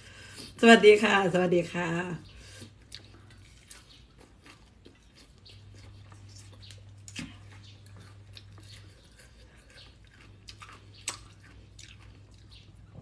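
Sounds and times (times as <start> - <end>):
low steady hum: 0.0 - 13.0
crunchy chewing: 2.2 - 13.0.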